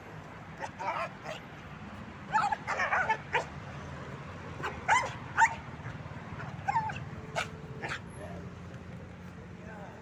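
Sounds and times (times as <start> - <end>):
young dog barking: 2.3 - 3.5, 4.6 - 5.6, 6.4 - 8.1.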